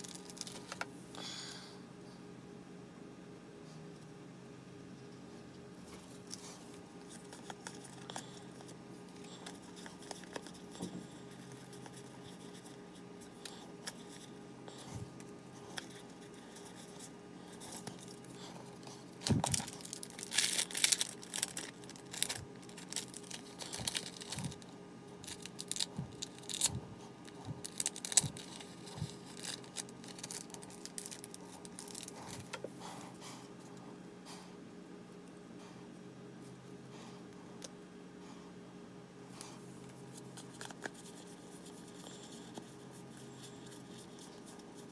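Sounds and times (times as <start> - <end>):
foil wrapper crinkling and tearing: 0.0 - 0.8, 19.2 - 32.5.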